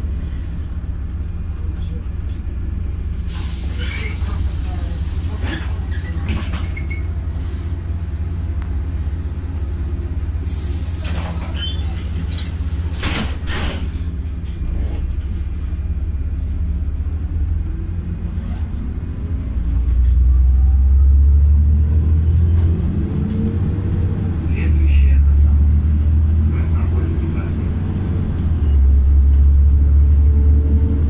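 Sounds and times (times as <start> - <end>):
bus engine and road rumble: 0.0 - 31.0
short air hiss: 3.3 - 4.9.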